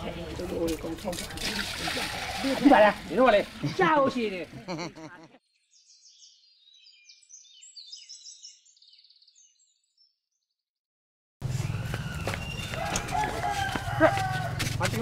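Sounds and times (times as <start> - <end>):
small birds chirping: 5.4 - 10.6, 11.5 - 13.6.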